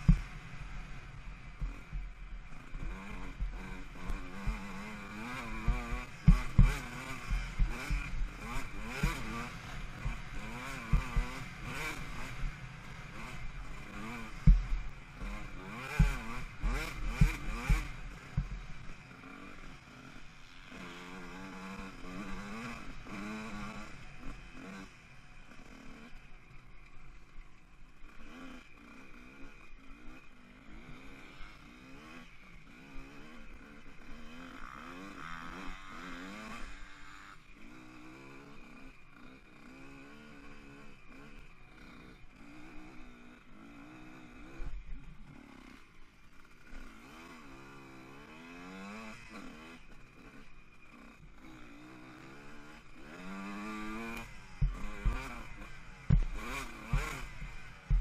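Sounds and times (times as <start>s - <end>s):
motocross bike engine revving: 0.0s - 58.0s.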